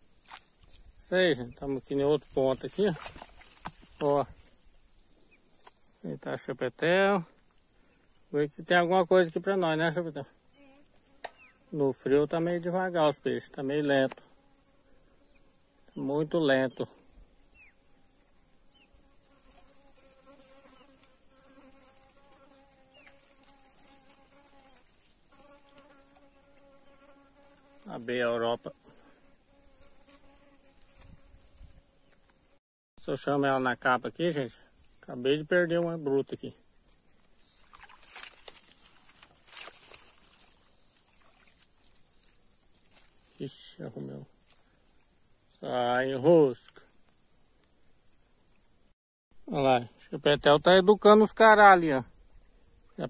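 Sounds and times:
flying insect buzzing: 0:10.2 - 0:12.6, 0:14.1 - 0:16.0, 0:16.9 - 0:32.6, 0:36.6 - 0:45.6.

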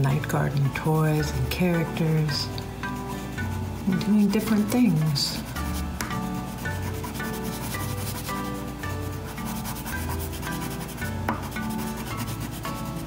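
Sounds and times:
soft background music: 0:00.0 - 0:13.0
crayon scribbling on paper: 0:03.0 - 0:13.0.

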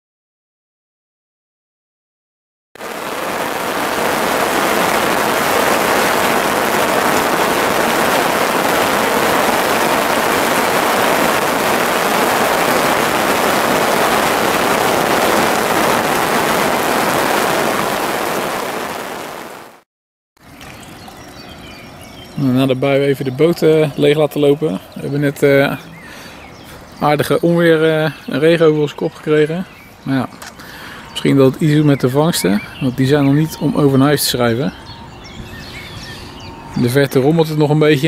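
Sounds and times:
heavy rain falling: 0:02.8 - 0:19.8.

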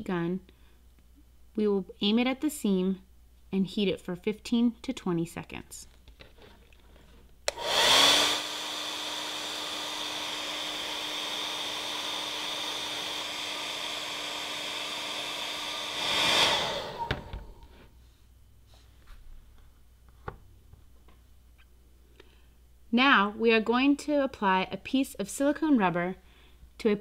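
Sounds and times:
hair dryer switch click: 0:07.5 - 0:07.8
rushing air: 0:07.5 - 0:17.7
hair dryer motor whine: 0:07.5 - 0:17.8.

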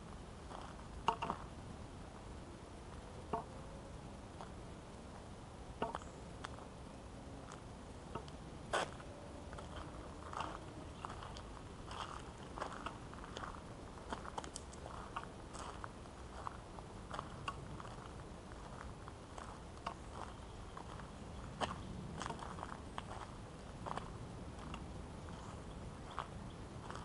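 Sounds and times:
background hiss: 0:00.0 - 0:27.0
footsteps on gravel: 0:00.4 - 0:01.5, 0:08.7 - 0:27.0.

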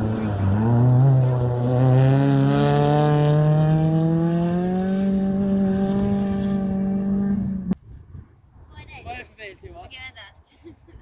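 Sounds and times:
rally car engine accelerating: 0:00.0 - 0:07.8.

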